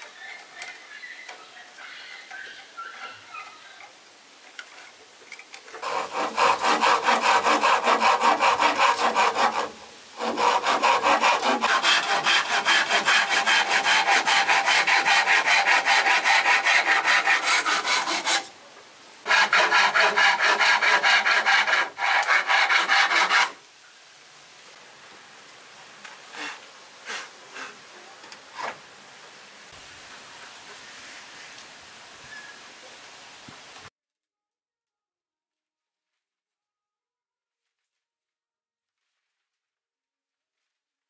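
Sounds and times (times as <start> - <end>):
hand saw sawing wood: 5.7 - 18.5, 19.2 - 23.6, 26.4 - 27.8.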